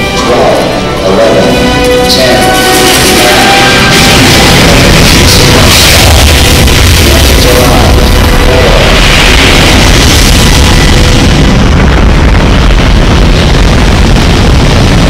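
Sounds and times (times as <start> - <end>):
music: 0.0 - 15.0
rocket roar: 0.0 - 15.0.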